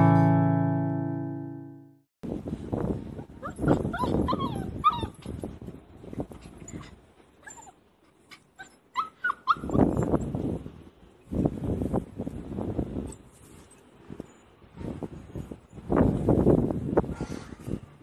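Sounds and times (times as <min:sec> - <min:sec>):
puppy whimpering and whining: 0:03.4 - 0:05.4, 0:06.3 - 0:10.3.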